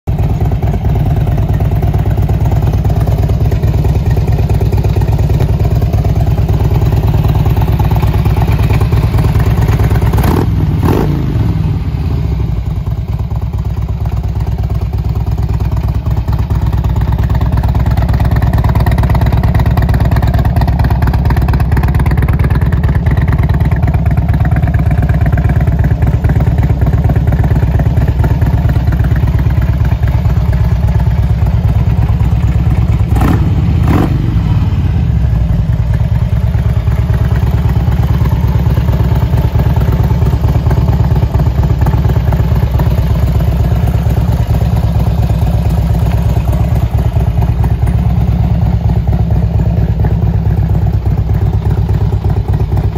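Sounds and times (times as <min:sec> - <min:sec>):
motorcycle engine idling: 0:00.1 - 0:52.9.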